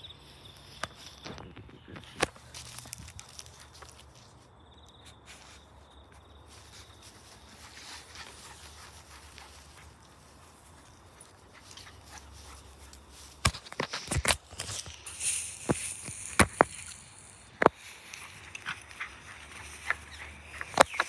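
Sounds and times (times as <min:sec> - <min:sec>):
rustling: 0:00.2 - 0:05.8, 0:06.4 - 0:21.0
footfalls on grass: 0:06.5 - 0:21.0.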